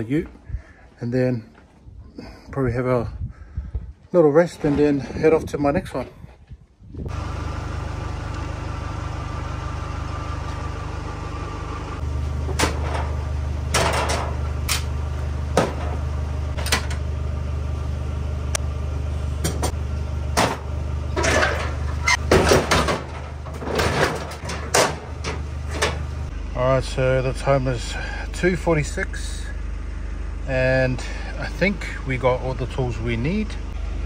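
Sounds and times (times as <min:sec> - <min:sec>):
steady low hum: 0:00.0 - 0:34.0
metal tools clanking: 0:12.6 - 0:14.9, 0:21.1 - 0:26.1.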